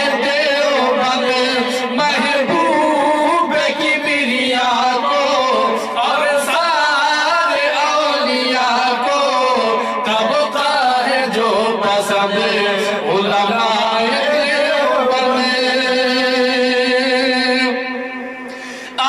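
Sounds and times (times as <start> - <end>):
man chanting melodically: 0.0 - 19.0.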